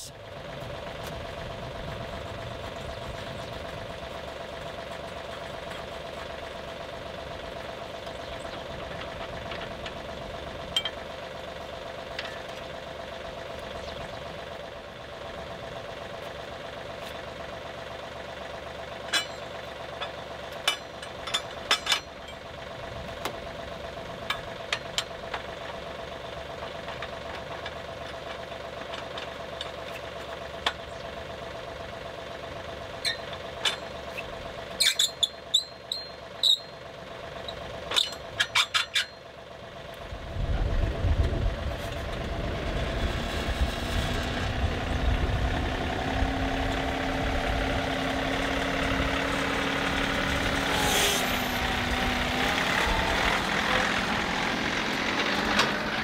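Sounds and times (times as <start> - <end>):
diesel tractor engine: 0.0 - 56.0
steel parts clanking: 10.7 - 11.1, 19.0 - 22.5, 33.0 - 36.8, 37.4 - 39.2
brief squeak: 34.2 - 36.7, 50.7 - 51.6
hydraulic whine: 41.1 - 56.0.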